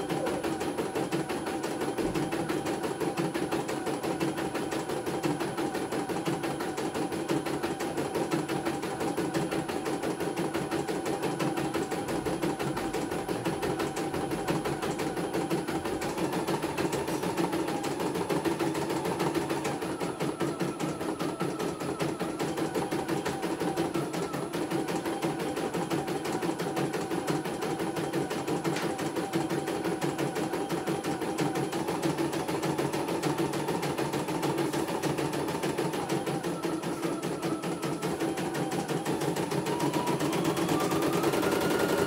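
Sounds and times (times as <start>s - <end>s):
embroidery machine stitching: 0.0s - 42.0s.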